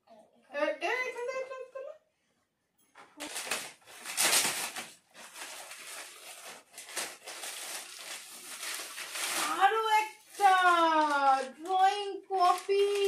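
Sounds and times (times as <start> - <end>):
metallic gift wrap crinkling: 3.2 - 13.0.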